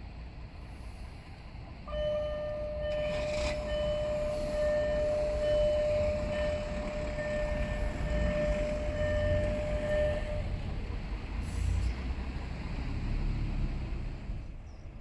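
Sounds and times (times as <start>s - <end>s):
crossing warning tone: 1.9s - 10.9s.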